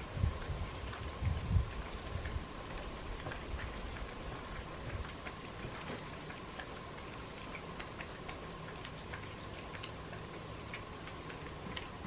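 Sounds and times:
melting snow dripping: 0.0s - 12.0s.

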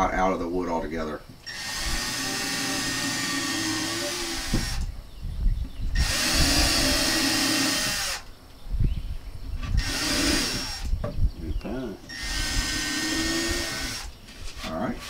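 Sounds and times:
electric drill drilling wood: 1.4s - 4.9s, 6.0s - 8.3s, 9.8s - 10.9s, 12.1s - 14.1s.

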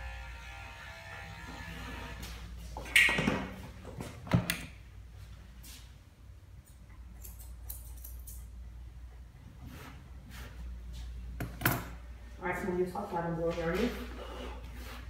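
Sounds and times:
electric dog clippers humming: 0.0s - 2.4s.

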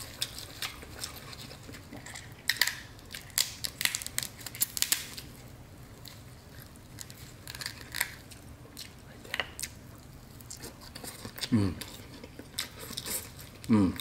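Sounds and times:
crab shells cracking: 0.0s - 5.3s, 6.0s - 9.8s.

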